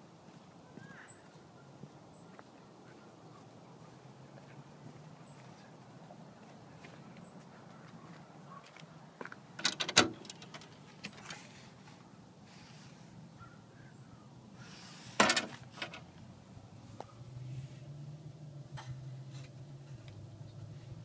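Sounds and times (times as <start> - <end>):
metal mailbox door clacks: 9.6 - 11.2, 15.2 - 16.0.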